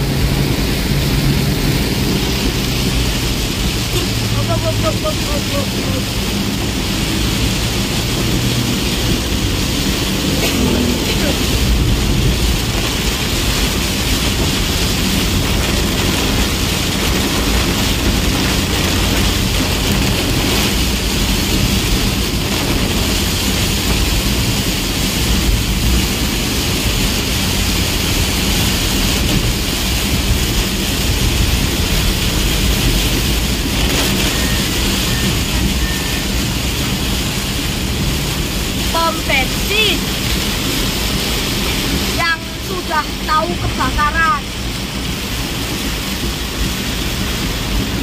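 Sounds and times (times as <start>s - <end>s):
bus engine and tyre rumble: 0.0s - 48.0s
heavy rain on windscreen: 0.0s - 48.0s.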